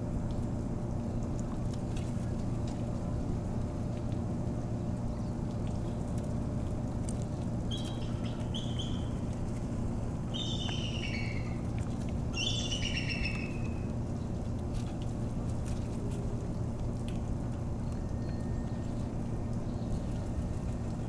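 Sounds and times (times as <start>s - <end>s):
steady low hum: 0.0s - 21.0s
eagle calling: 10.4s - 11.6s, 12.4s - 13.7s.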